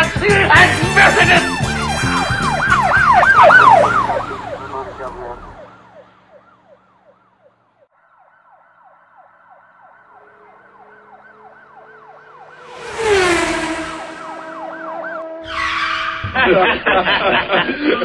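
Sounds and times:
siren yelp wailing: 1.0 - 16.8
loud rush with falling tone: 11.6 - 15.6.

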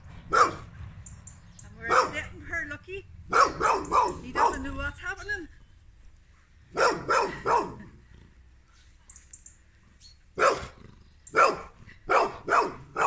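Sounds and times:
dog barking: 0.3 - 0.7, 1.8 - 2.3, 3.3 - 4.7, 6.7 - 7.9, 10.4 - 13.0.

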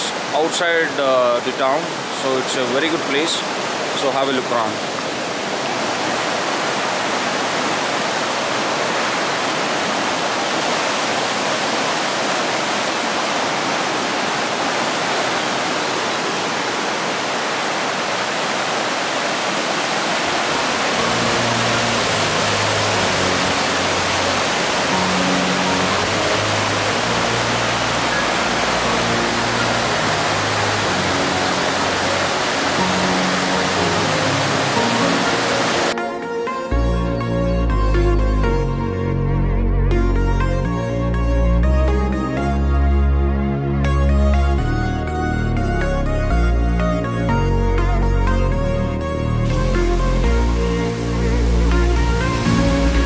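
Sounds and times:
stream rushing over rocks: 0.0 - 36.8, 46.8 - 53.0
background music with low notes: 21.0 - 53.0.

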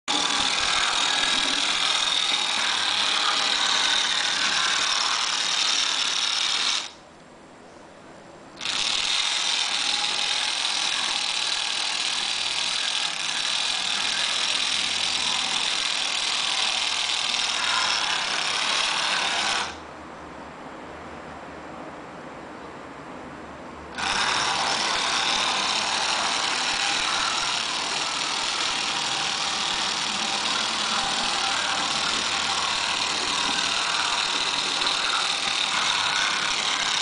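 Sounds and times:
model tram motor whining: 24.0 - 37.0.

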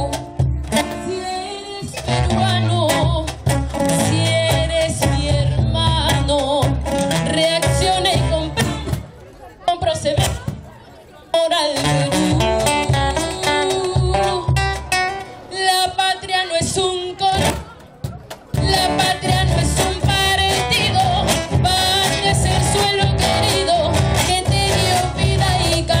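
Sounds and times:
woman singing over loudspeaker: 0.0 - 9.0, 9.7 - 10.5, 11.3 - 14.9, 15.5 - 17.7, 18.6 - 26.0
instrumental accompaniment: 0.0 - 9.1.

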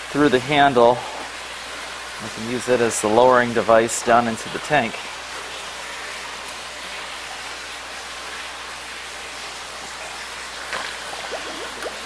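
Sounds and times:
water splashing into tank: 5.4 - 12.0.

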